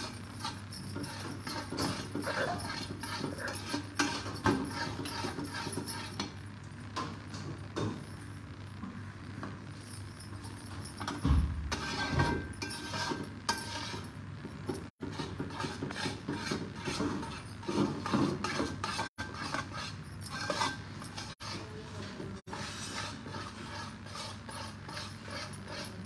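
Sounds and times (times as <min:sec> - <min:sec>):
spatula scraping a metal pan: 0:00.0 - 0:06.4, 0:11.7 - 0:26.0.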